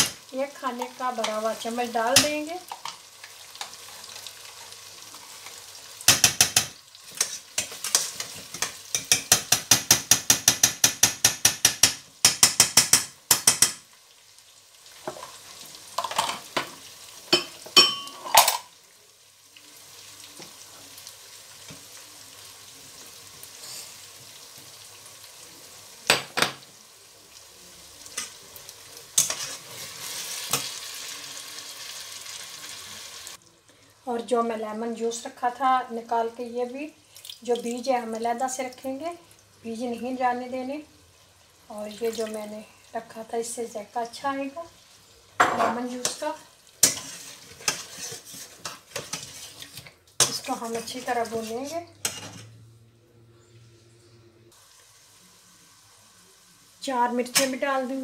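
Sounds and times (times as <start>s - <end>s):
food sizzling in a pot: 0.0s - 58.0s
spatula clinking against a pot: 6.1s - 13.8s
spatula scraping a pan: 7.0s - 9.6s, 29.2s - 30.7s, 45.7s - 52.6s.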